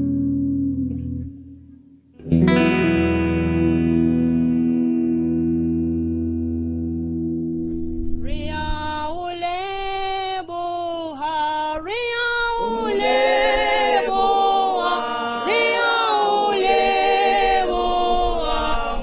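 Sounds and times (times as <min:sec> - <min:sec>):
choir singing unaccompanied: 0:11.8 - 0:19.0.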